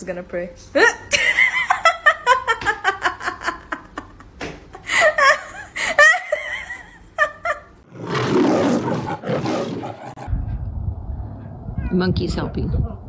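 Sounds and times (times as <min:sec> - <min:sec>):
person laughing: 0:00.8 - 0:07.8
loud rough roar: 0:07.9 - 0:10.4.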